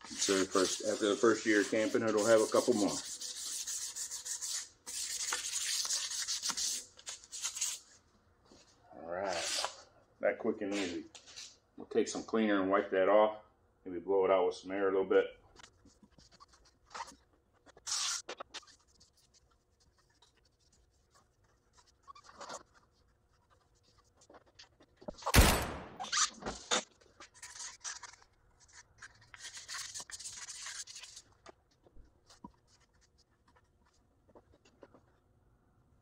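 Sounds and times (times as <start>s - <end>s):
scratchy rubbing: 0.0s - 7.8s, 15.6s - 25.0s, 26.0s - 35.1s.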